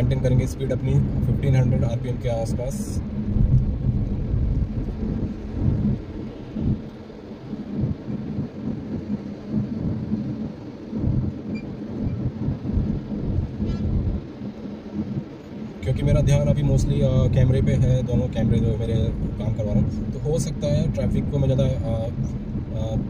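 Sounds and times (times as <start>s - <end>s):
car cabin road and engine rumble: 0.0s - 23.0s.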